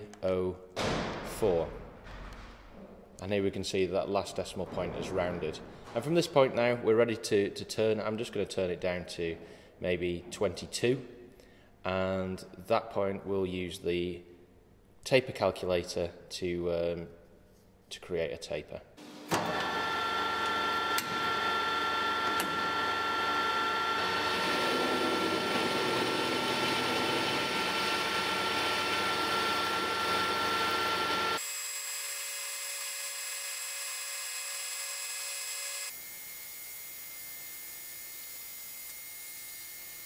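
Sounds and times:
metal lathe whining: 19.3s - 40.0s
tool cutting metal bar: 19.3s - 40.0s.

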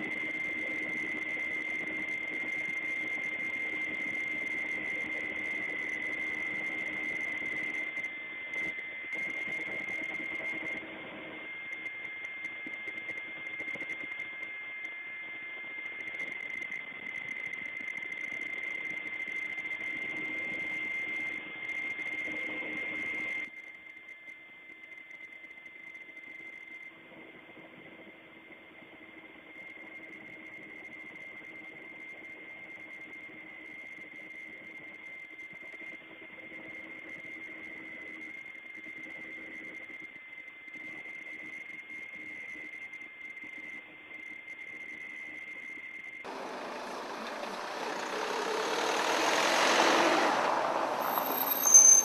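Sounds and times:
steady engine noise: 46.3s - 52.0s.

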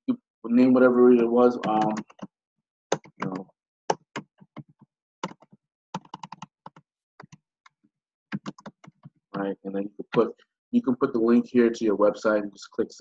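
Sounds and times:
keyboard typing: 1.6s - 2.3s, 2.9s - 9.2s.

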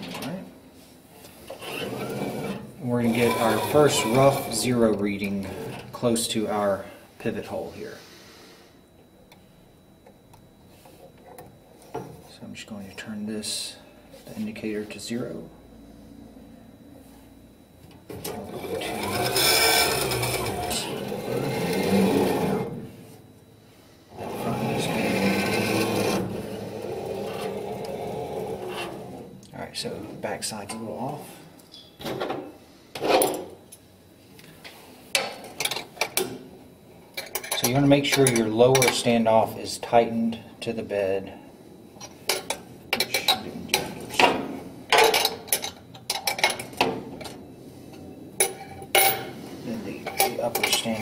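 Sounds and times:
printer carriage rolling on rails: 1.5s - 4.8s, 18.1s - 22.8s, 24.2s - 29.2s
wrench scraping: 1.5s - 5.8s, 18.2s - 22.8s, 24.3s - 29.2s.

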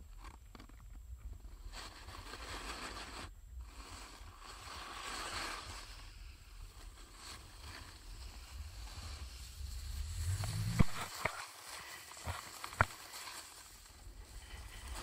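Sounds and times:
skis swishing over snow: 1.8s - 15.0s
wind rumble on microphone: 6.3s - 11.5s.

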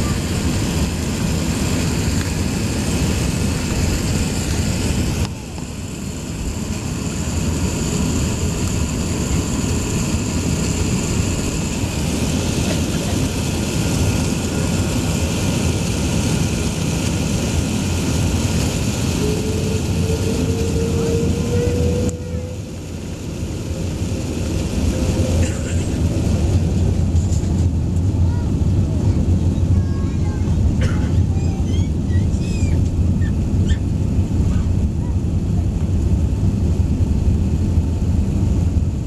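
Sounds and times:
airplane cabin noise while taxiing: 0.0s - 39.0s
thin rising whine: 18.6s - 25.4s.

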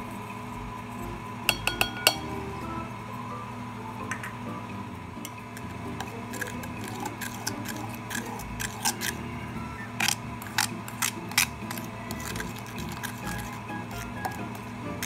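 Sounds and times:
spoon scraping ceramic bowl: 5.6s - 9.3s, 10.0s - 14.6s.

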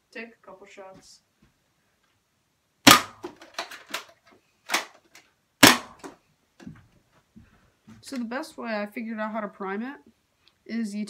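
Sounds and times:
toy blaster shots: 2.9s - 4.0s, 5.6s - 6.1s.

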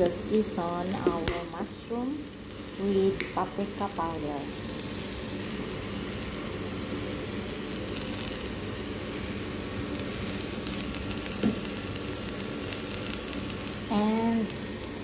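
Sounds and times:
vegetables sizzling in a frying pan: 0.0s - 15.0s.

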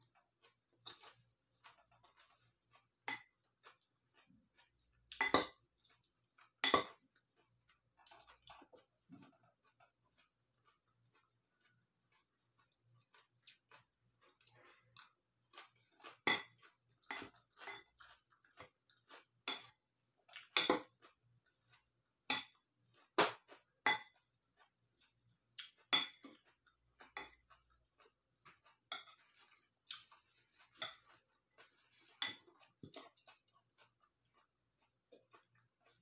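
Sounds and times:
fork clinking on salad bowl: 19.4s - 19.8s, 25.9s - 26.4s.

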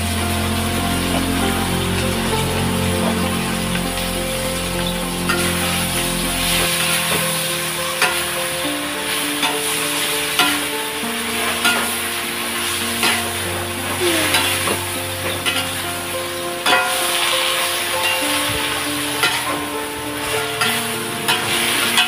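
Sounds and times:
soft background music: 0.0s - 22.0s
vegetables sizzling in wok: 0.0s - 22.0s
metal spatula scraping pan: 11.5s - 12.0s, 12.9s - 13.4s, 14.0s - 15.8s, 16.6s - 22.0s.

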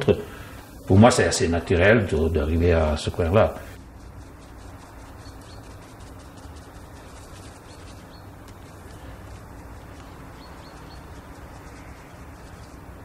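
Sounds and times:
faint hum: 0.0s - 13.0s
small scattered ticks: 0.6s - 13.0s
high chirps: 4.0s - 13.0s.

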